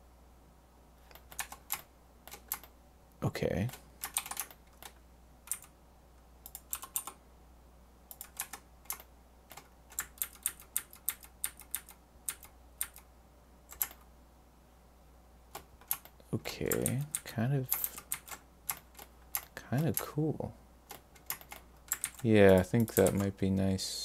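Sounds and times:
faint steady low hum: 0.0 - 24.0
computer keyboard clicking: 1.0 - 2.7, 3.7 - 5.7, 6.4 - 7.2, 8.1 - 13.1, 13.7 - 14.0, 15.5 - 20.1, 20.9 - 23.4.

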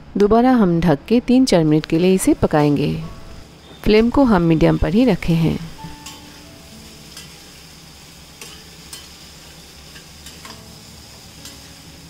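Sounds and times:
food sizzling in oil: 1.7 - 12.0
metal spatula scraping a pan: 6.0 - 12.0.

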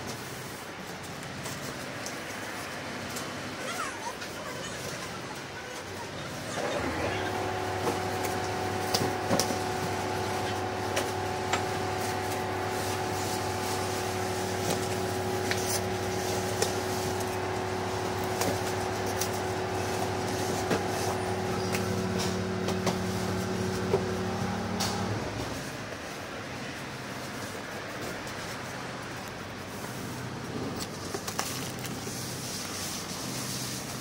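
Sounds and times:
steady hum: 6.8 - 27.1
clicks and rustles of foam packing: 30.6 - 34.0.

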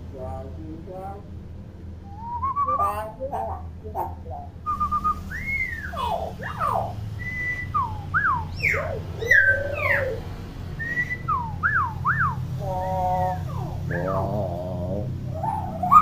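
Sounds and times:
bird whistling: 2.1 - 3.1, 4.6 - 14.7, 15.3 - 16.0.

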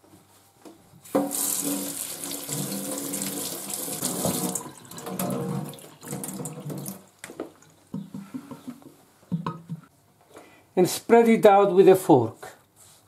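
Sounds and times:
tap water splashing into sink: 1.1 - 7.7.

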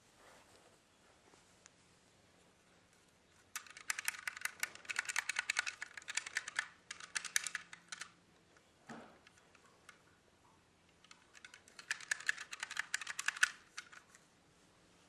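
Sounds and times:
plastic parts clicking: 3.5 - 10.0, 10.9 - 14.2.

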